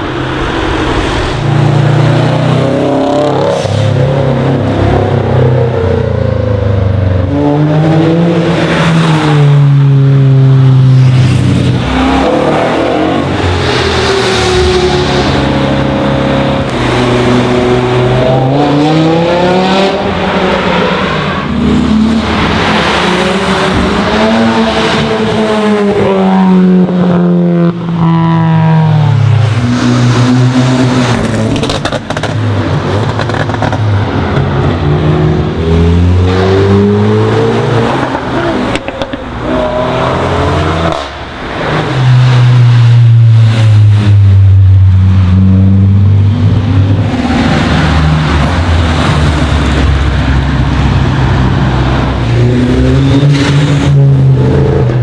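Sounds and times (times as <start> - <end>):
cars accelerating past: 0.0 - 55.0.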